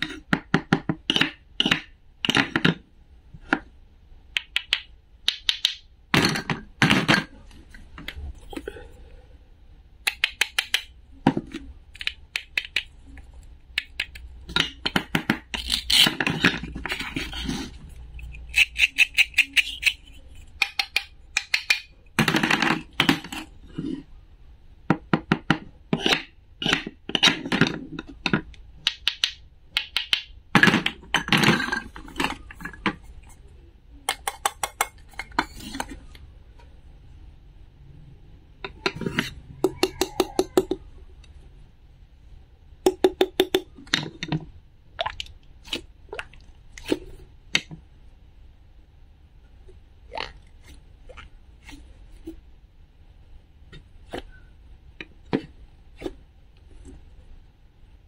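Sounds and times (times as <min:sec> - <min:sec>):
toy pieces clicking together: 0:18.2 - 0:21.9.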